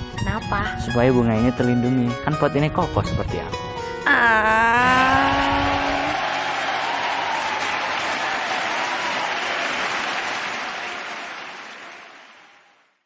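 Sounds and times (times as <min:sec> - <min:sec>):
crowd applause: 0:05.0 - 0:13.0.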